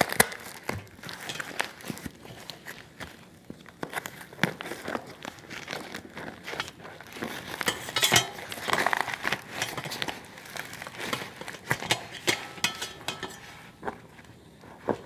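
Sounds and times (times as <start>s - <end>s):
paper and tape crinkling and tearing: 0.0s - 12.7s
clinking against metal plate: 1.2s - 1.7s, 7.6s - 8.8s, 9.5s - 10.2s, 11.1s - 13.7s.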